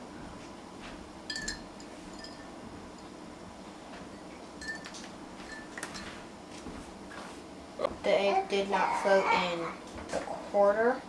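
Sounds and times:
eggs clinking against glasses: 1.3 - 3.1, 4.6 - 6.2.

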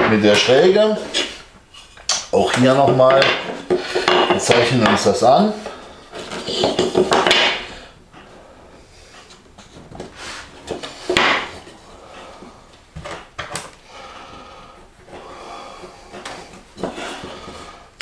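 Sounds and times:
wood knocking on wood: 2.8 - 5.0.

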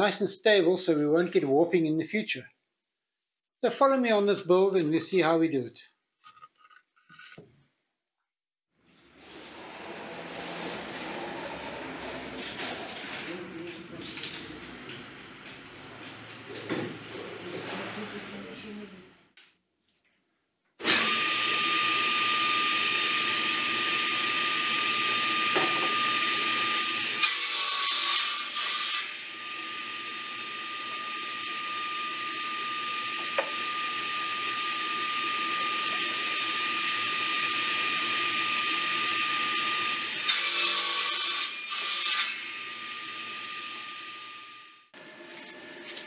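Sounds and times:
table saw whining: 8.9 - 18.7, 20.8 - 46.0.

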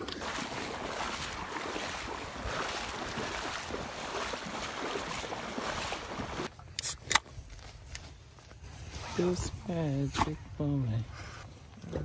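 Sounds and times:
water splashing around wading legs: 0.0 - 6.5.

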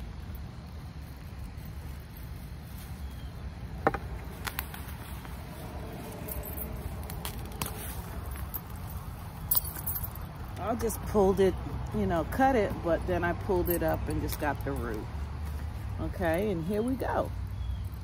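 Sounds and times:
plant stalks snapping: 4.3 - 5.0, 7.0 - 8.4.

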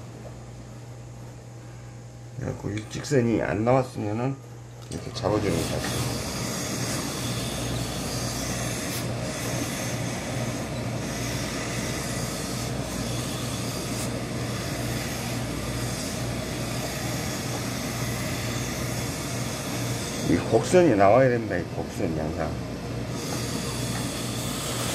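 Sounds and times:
steam iron hissing and humming: 5.1 - 20.9, 23.1 - 24.9.

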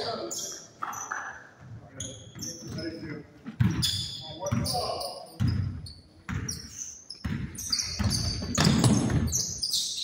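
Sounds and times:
shoe squeaks: 0.0 - 10.0
basketball bouncing on hardwood: 7.2 - 9.3.

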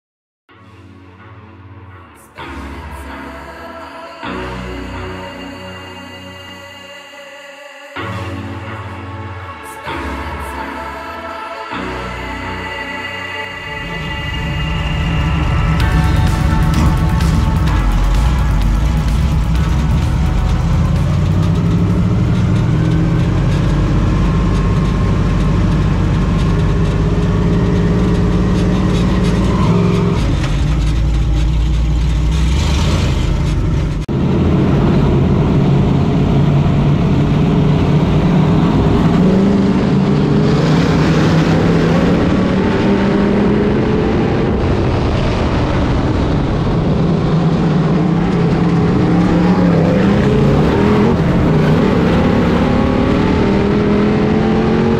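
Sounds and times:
race car engine: 13.4 - 54.9.

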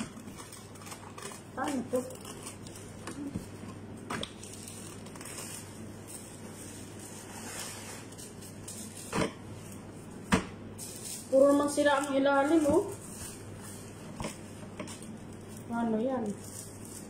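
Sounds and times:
rustling paper and plastic gloves: 0.0 - 17.0
steady low hum: 0.0 - 17.0.

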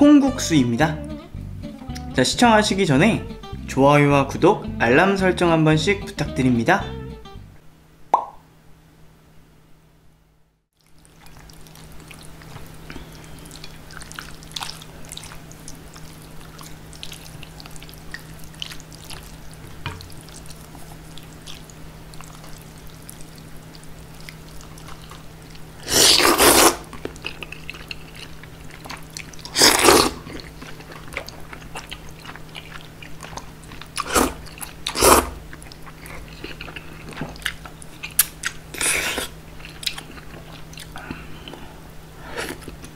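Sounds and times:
loud noodle slurps: 25.8 - 26.9, 29.5 - 30.2, 34.0 - 35.4.

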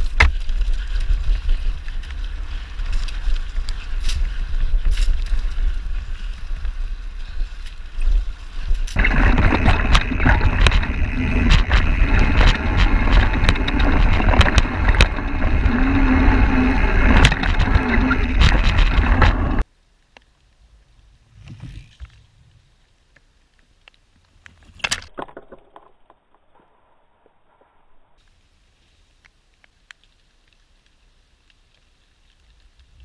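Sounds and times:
bike clicking and rattling: 0.0 - 19.6
wind over microphone: 0.0 - 19.6
tyres rumbling on dirt: 9.0 - 19.6.

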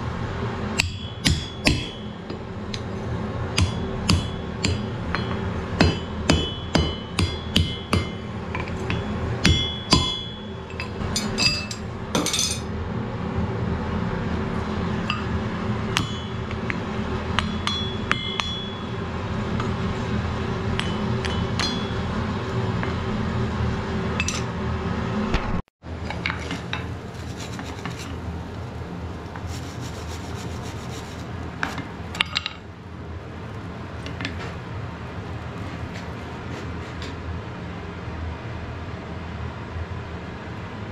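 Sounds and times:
steady low hum: 0.0 - 40.9
hammer striking iron on anvil: 0.8 - 2.9, 3.5 - 12.7, 15.1 - 19.0, 20.7 - 22.2.

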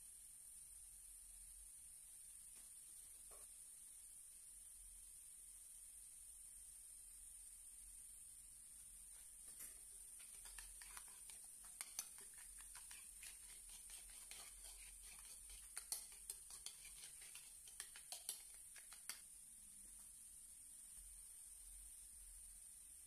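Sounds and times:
faint steady hiss: 0.0 - 23.0
spoon scraping glass bowl: 10.2 - 19.2
spoon tapping bowl: 10.2 - 19.2.

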